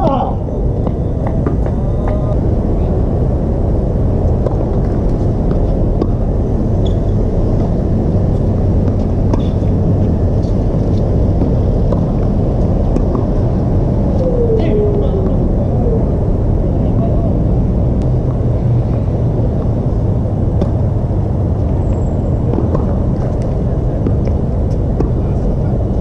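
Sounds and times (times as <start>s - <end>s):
loud low rumble: 0.0s - 26.0s
racket hitting tennis ball: 11.4s - 12.3s, 24.0s - 25.2s.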